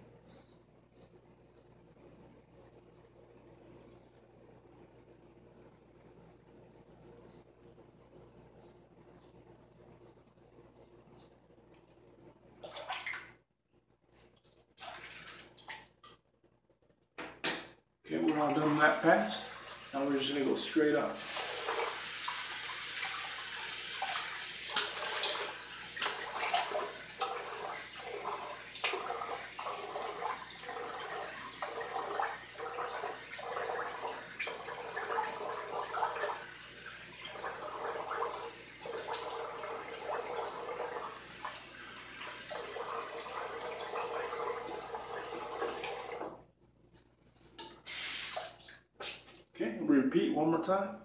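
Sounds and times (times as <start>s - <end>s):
water running from a tap: 18.2s - 46.4s, 47.9s - 48.8s.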